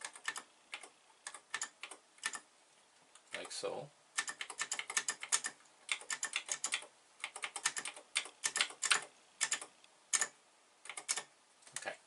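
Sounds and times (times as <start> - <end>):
computer keyboard keys clicking: 0.0 - 2.4, 4.2 - 10.3, 10.9 - 11.9.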